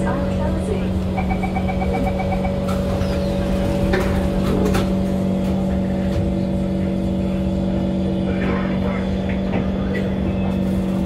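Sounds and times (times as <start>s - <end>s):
metro train hum and rumble: 0.0s - 11.0s
short beeps: 1.2s - 2.7s.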